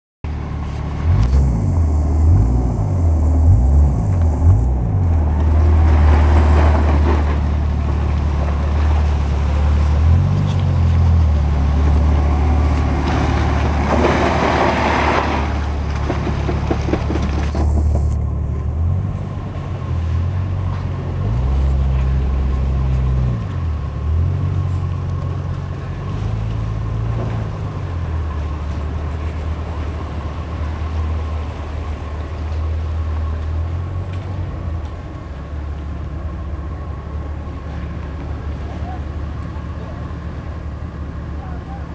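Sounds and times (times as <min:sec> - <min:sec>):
car engine revving under load: 0:00.3 - 0:41.9
loud rushing noise: 0:00.6 - 0:07.5.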